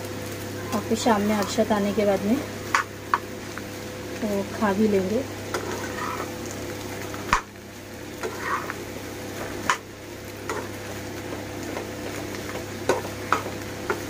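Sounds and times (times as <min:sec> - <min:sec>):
food cooking hiss: 0:00.0 - 0:14.0
metal spatula scraping a pan: 0:05.5 - 0:06.3, 0:08.2 - 0:08.8.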